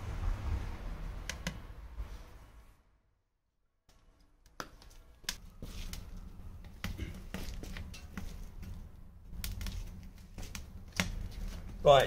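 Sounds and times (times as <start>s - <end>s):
wood fire crackling: 3.9s - 12.0s.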